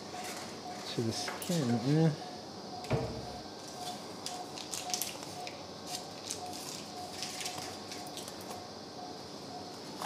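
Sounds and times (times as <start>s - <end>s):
patient monitor beeping: 0.0s - 5.6s.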